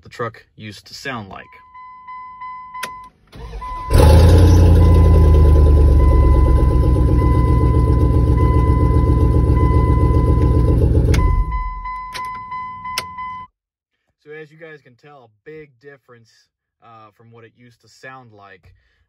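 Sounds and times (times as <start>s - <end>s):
truck engine starting and running: 2.8s - 13.4s.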